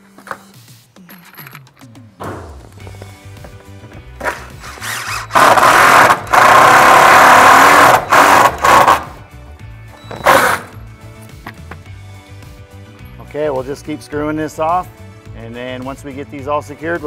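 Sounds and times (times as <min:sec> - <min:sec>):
impact driver driving screws: 0:04.2 - 0:09.2, 0:10.1 - 0:10.8.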